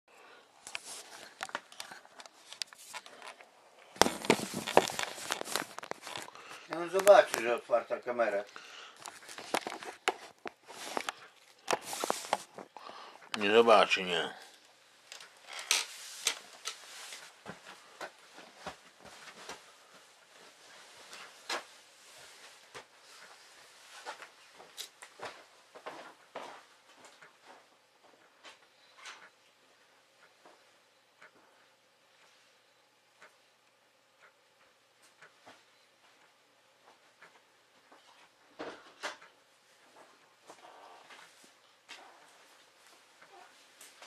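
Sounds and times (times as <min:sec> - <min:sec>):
clicks and rustles: 0:00.6 - 0:07.6, 0:09.0 - 0:13.5
hands and clothing rubbing microphone: 0:04.0 - 0:06.3, 0:11.7 - 0:12.6.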